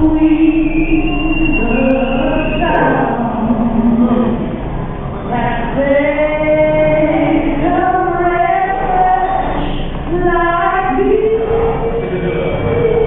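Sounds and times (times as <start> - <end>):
woman singing long notes: 0.0 - 4.4, 5.3 - 12.0.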